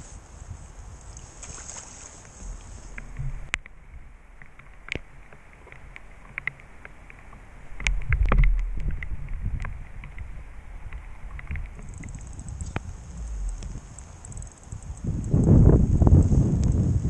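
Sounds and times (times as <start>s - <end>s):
low rumble: 7.8s - 16.8s.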